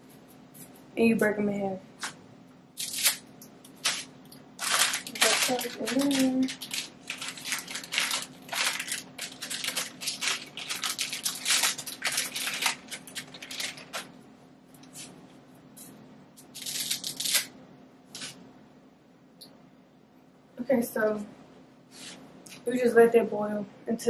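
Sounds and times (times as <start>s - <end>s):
dry spaghetti snapping: 2.8s - 14.1s, 16.4s - 17.6s.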